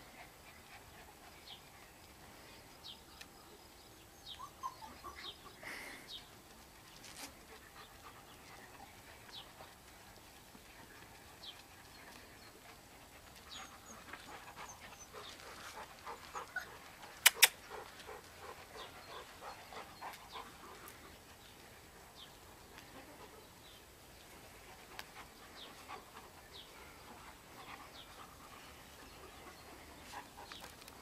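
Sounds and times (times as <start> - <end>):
puppies whimpering: 4.3 - 5.6
sharp clicks: 17.2 - 17.6.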